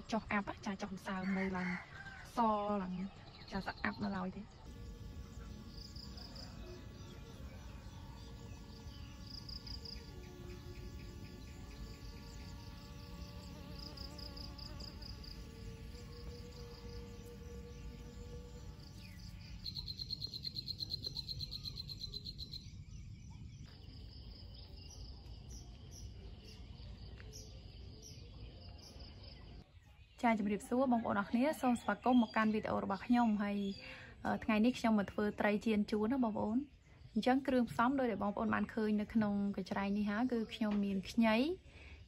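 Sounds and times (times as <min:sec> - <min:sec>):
insects chirping in pulsed bursts: 0:04.6 - 0:22.8
fast insect trill: 0:04.7 - 0:22.6.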